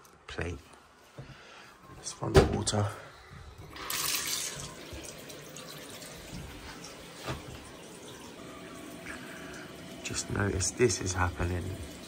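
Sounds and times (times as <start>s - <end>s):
water gushing into sink: 3.6s - 12.0s.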